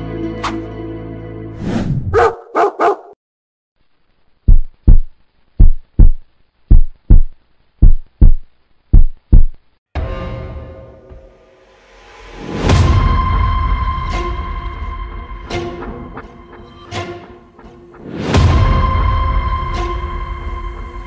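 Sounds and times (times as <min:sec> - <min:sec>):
music: 0:00.0 - 0:01.6, 0:09.9 - 0:21.0
dog barks: 0:02.1 - 0:03.2
heartbeat thumps: 0:04.5 - 0:09.6.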